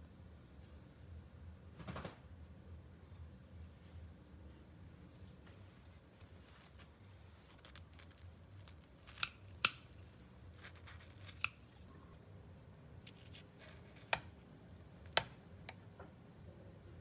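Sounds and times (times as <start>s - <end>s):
scissors snipping fried dough: 7.5s - 11.9s.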